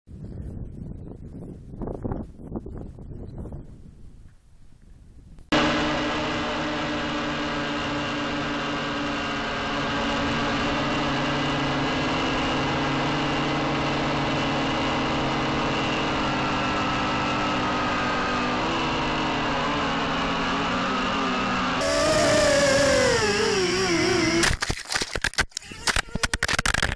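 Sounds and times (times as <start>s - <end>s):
quadcopter propellers whining: 5.5s - 26.7s.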